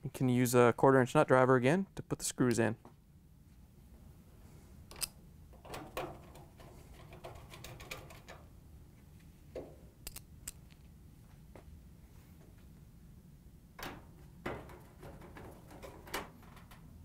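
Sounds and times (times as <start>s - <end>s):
nut driver clicking and scraping: 4.9s - 8.4s, 10.0s - 10.8s.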